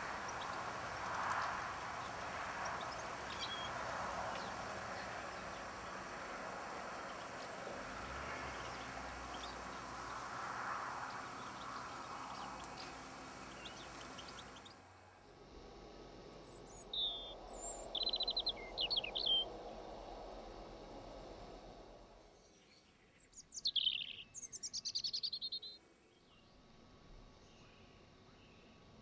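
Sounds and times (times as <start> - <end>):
small birds chirping: 0.0 - 14.8, 16.4 - 19.5, 22.4 - 26.5
bird trill: 16.6 - 19.5, 23.4 - 25.8.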